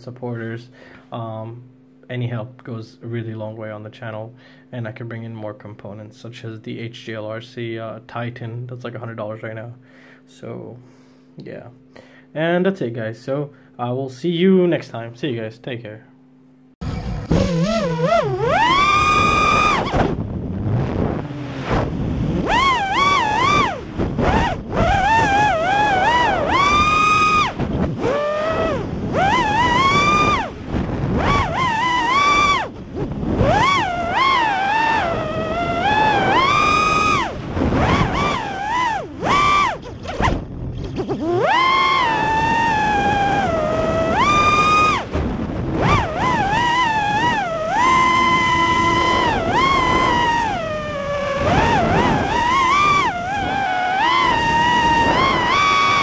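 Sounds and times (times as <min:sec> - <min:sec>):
quadcopter motors whining: 0:16.8 - 0:56.0.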